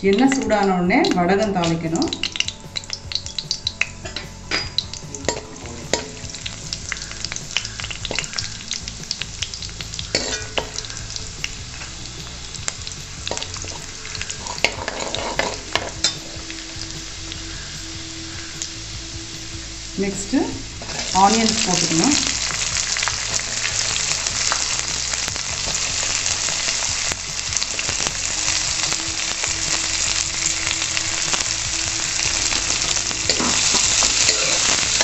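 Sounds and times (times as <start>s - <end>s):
spices sizzling in hot oil: 0.0s - 35.0s
metal ladle stirring: 9.9s - 11.0s, 13.3s - 16.4s, 32.3s - 35.0s.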